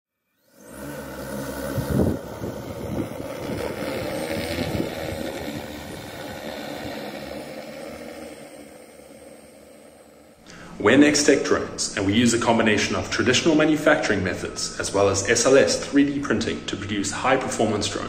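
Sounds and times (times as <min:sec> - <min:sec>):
drone propellers buzzing: 0:00.3 - 0:11.3.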